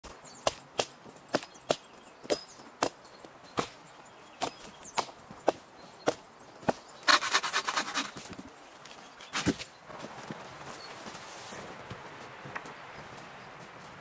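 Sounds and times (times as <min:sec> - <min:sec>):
hatchet chopping log: 0:00.4 - 0:03.0, 0:03.6 - 0:03.8, 0:04.4 - 0:08.1
bow saw cutting wood: 0:07.1 - 0:08.2.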